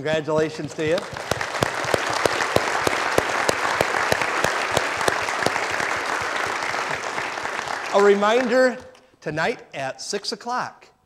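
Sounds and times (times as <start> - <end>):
sharp claps close by: 0.0 - 9.0
crowd applauding: 0.6 - 8.9.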